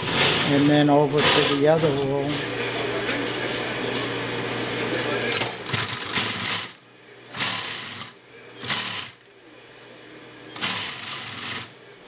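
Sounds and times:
sewing machine stitching: 0.0 - 1.6, 5.4 - 9.3, 10.6 - 11.8.

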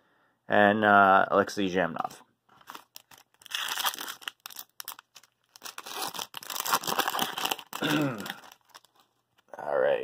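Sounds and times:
card pack wrapper crinkling: 2.5 - 9.5.

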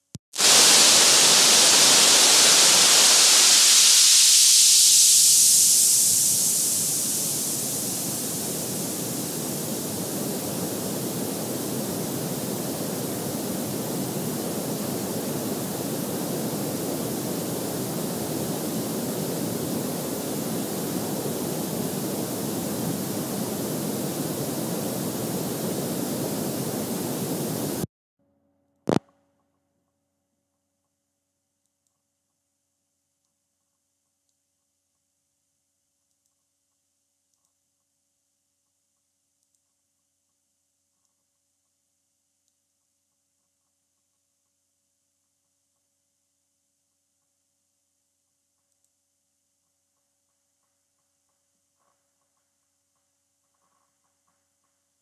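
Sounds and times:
static noise hiss: 0.0 - 27.9
click: 28.9 - 29.1, 36.1 - 36.4, 39.4 - 39.7, 48.6 - 49.0.

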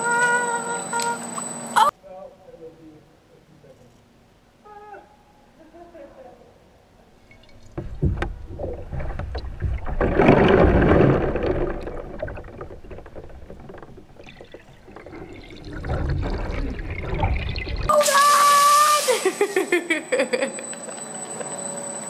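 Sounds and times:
underwater sloshing and bubbling: 7.3 - 17.9.

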